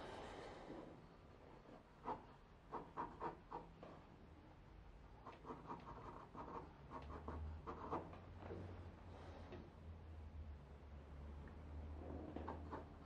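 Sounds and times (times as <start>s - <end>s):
pencil scratching on paper: 2.0s - 3.7s, 5.2s - 8.2s.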